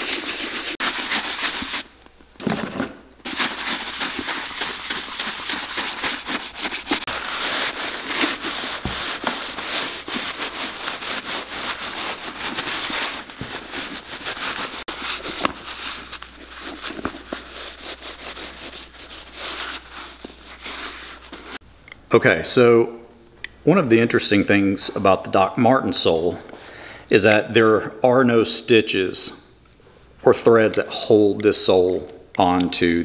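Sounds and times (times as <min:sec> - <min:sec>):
brush scrubbing leather: 0:00.0 - 0:01.9, 0:03.2 - 0:21.6
cloth wiping leather: 0:00.0 - 0:01.9, 0:03.2 - 0:21.6.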